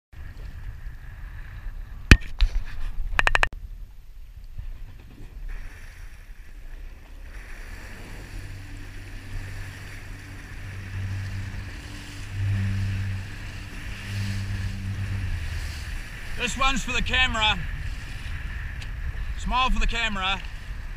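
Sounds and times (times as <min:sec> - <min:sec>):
wind noise: 0:00.1 - 0:20.9
jet ski engine humming: 0:03.2 - 0:20.9
water sloshing against hull: 0:04.2 - 0:20.9.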